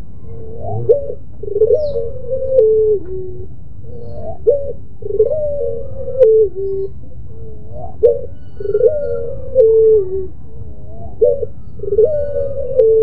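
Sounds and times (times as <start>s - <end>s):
dove cooing: 0.0s - 13.0s.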